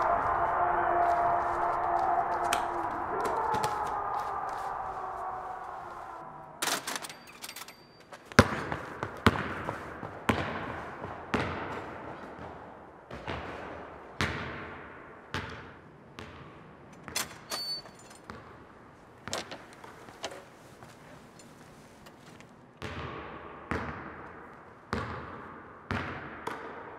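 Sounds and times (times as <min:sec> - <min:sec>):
basketball bouncing on hardwood floor: 0:08.3 - 0:14.7, 0:15.3 - 0:16.6, 0:22.8 - 0:24.1, 0:24.9 - 0:26.6.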